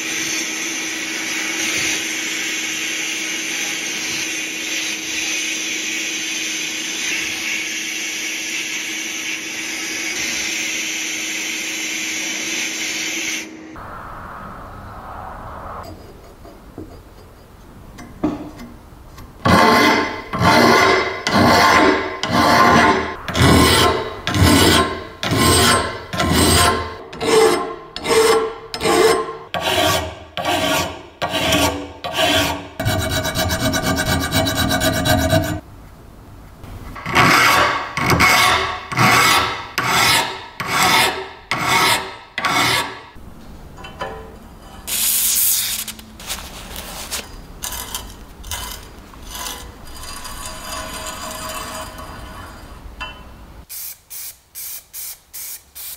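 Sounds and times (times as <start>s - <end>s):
hand file rasping on metal: 19.4s - 35.6s, 37.0s - 43.1s, 47.6s - 52.2s.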